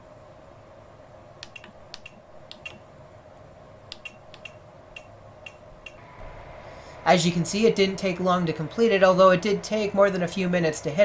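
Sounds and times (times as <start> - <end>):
faint steady hum: 0.0 - 11.0
push buttons clicking: 1.4 - 2.8, 3.9 - 6.0.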